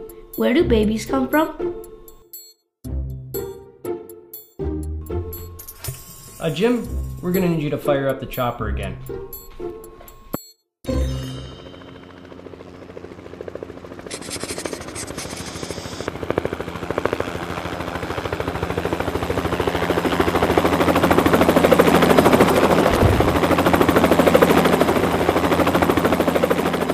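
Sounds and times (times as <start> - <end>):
helicopter rotor blades chopping: 5.4 - 8.5, 10.9 - 26.9.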